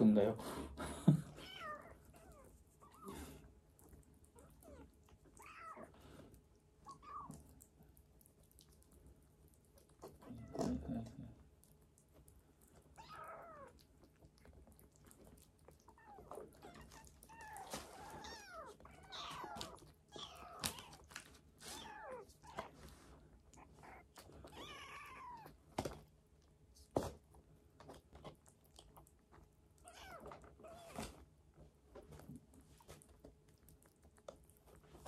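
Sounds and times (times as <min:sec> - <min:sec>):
kittens mewing: 0:01.2 - 0:03.5, 0:04.2 - 0:06.1, 0:06.8 - 0:07.6, 0:12.9 - 0:14.1, 0:15.8 - 0:22.8, 0:23.5 - 0:25.6.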